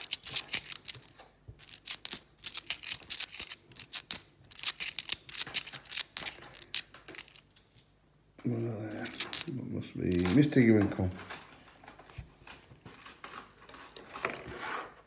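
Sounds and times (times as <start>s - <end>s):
coins clinking: 0.0s - 7.4s, 9.0s - 9.5s.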